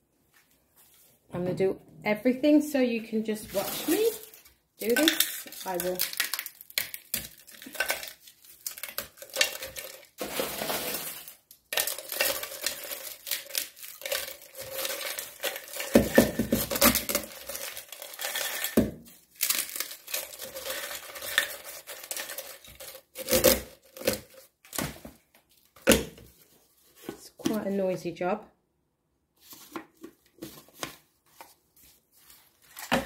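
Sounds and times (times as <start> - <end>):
eggshells crunching: 4.8 - 24.3.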